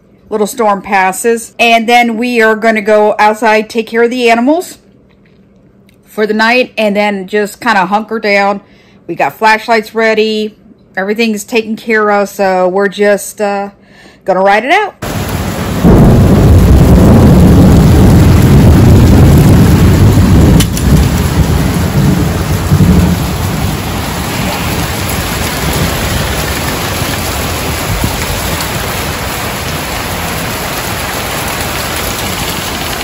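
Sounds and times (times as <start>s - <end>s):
heavy rain: 15.0s - 33.0s
sharp thunder crack: 15.0s - 33.0s
thunder rumbling: 15.0s - 33.0s.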